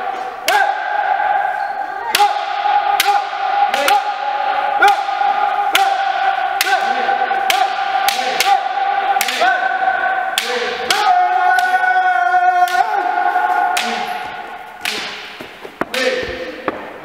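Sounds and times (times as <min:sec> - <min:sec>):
people shouting: 0:00.0 - 0:16.7
bamboo sword strikes cracking: 0:14.8 - 0:16.1.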